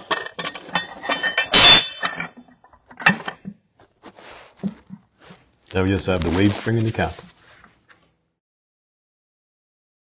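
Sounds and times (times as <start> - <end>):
steel parts clinking and knocking: 0.0 - 3.6.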